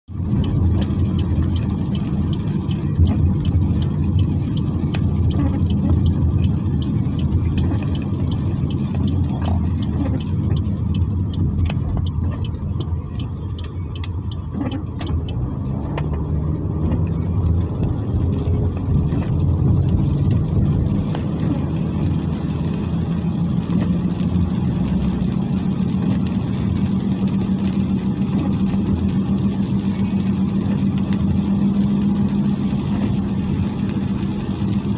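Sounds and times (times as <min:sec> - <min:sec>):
low engine hum: 0:00.0 - 0:34.9
tyres hissing on wet road: 0:00.1 - 0:11.0, 0:14.5 - 0:34.9.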